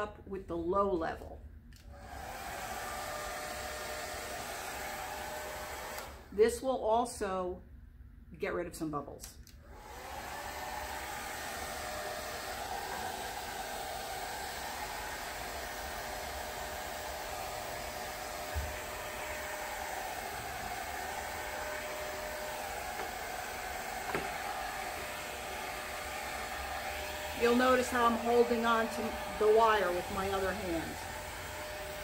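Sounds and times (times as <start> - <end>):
hair dryer blowing: 1.8 - 6.4, 9.6 - 32.0.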